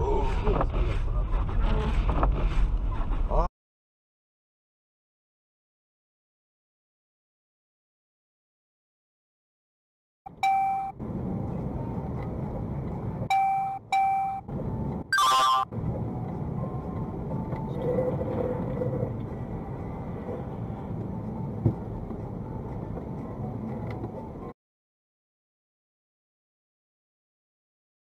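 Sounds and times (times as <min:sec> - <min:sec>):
road and engine noise: 0:00.0 - 0:03.5, 0:10.3 - 0:24.6.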